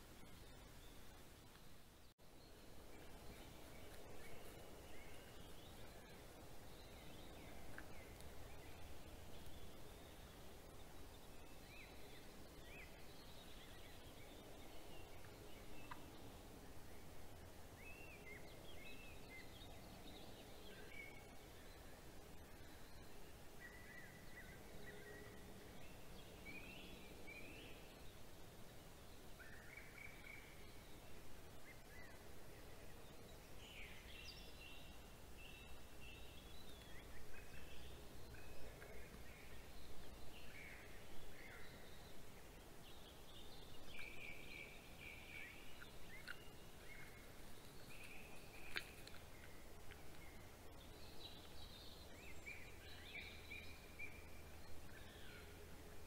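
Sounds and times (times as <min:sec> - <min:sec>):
faint hiss and low hum: 0:00.0 - 0:56.0
birds singing: 0:17.8 - 0:56.0.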